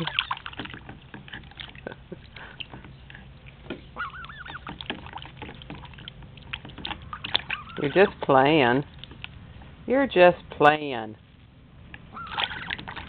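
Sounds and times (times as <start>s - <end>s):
goose bill splashing in water: 0.0s - 9.4s, 12.1s - 13.0s
goose soft calls: 4.0s - 4.8s, 7.0s - 8.2s, 12.1s - 12.8s.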